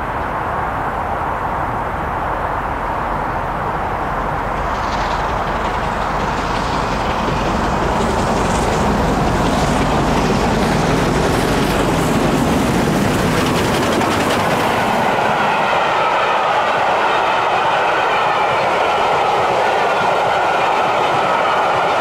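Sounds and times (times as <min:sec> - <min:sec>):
steam locomotive passing: 0:00.0 - 0:22.0
train coaches rolling past: 0:00.0 - 0:22.0.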